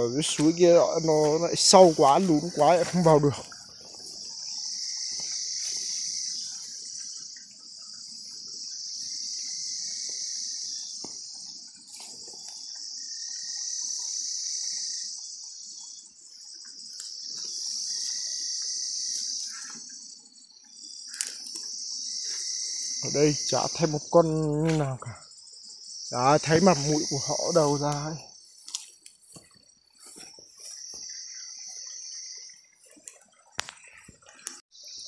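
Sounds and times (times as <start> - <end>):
footsteps through grass: 0.0 - 4.4, 5.0 - 6.8, 24.5 - 25.0, 26.6 - 31.3
insect chorus: 0.0 - 35.0.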